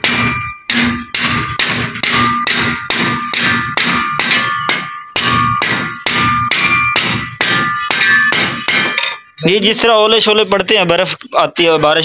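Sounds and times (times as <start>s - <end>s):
hammer blows on metal: 0.0s - 9.4s.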